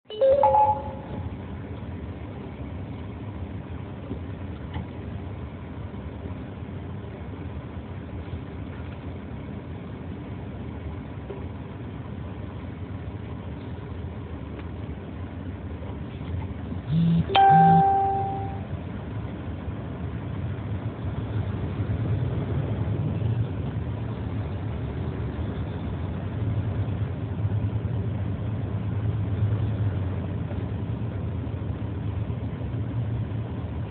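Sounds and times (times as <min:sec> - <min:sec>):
short electronic chimes: 0:00.1 - 0:01.3, 0:17.0 - 0:18.6
truck engine hum: 0:00.1 - 0:33.9.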